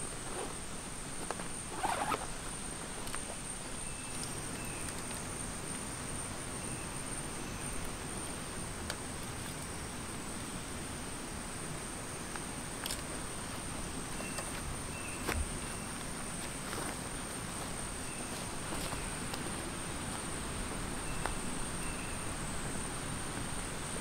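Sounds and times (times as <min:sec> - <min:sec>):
zipper rasp: 0:00.2 - 0:00.6, 0:01.6 - 0:02.3
faint chirps: 0:21.0 - 0:22.5
high-pitched insect drone: 0:21.0 - 0:24.0.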